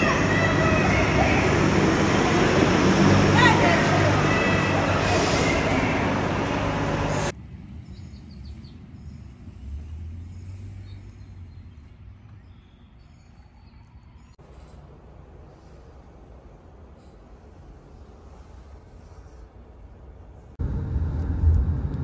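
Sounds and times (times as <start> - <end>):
protest crowd voices: 0.0 - 2.4, 3.1 - 6.4
low rumble: 20.6 - 22.0.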